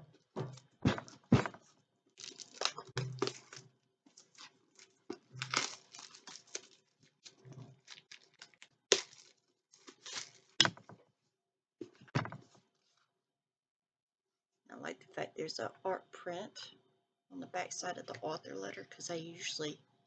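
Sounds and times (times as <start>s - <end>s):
wrapping torn and crinkled: 2.2s - 10.6s.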